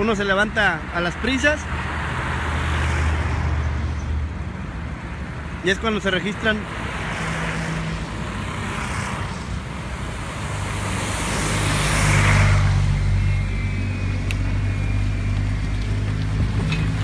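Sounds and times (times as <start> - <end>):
cars passing with tyre hiss: 0.0 - 17.0
low engine hum: 8.8 - 17.0.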